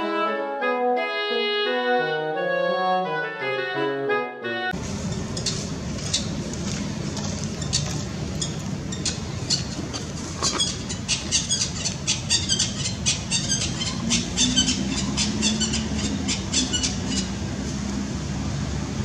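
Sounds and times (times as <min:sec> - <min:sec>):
brass-led music: 0:00.0 - 0:04.8.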